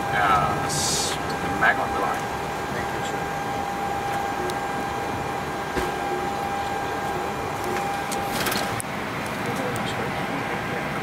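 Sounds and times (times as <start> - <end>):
steady high tone: 0.0 - 9.0
engine and ventilation hum: 0.0 - 11.0.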